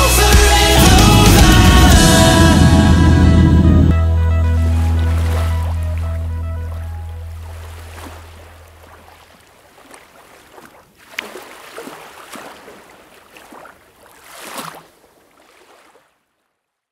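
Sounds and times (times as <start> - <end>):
background music: 0.0 - 7.8
sea water washing and splashing: 4.7 - 16.2.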